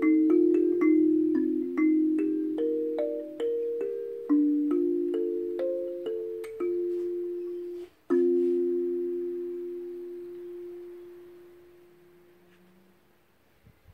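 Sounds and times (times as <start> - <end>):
kalimba tines plucked: 0.0 - 12.5.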